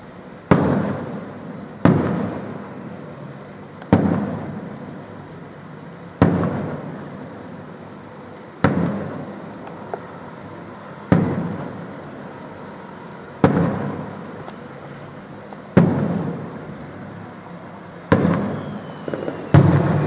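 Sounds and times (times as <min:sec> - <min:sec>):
echo of bangs: 0:00.5 - 0:01.2, 0:01.8 - 0:02.6, 0:03.9 - 0:04.6, 0:06.2 - 0:07.0, 0:08.6 - 0:09.3, 0:11.1 - 0:11.8, 0:13.4 - 0:14.2, 0:15.7 - 0:16.6, 0:18.1 - 0:20.0
firework shells bursting: 0:18.1 - 0:20.0.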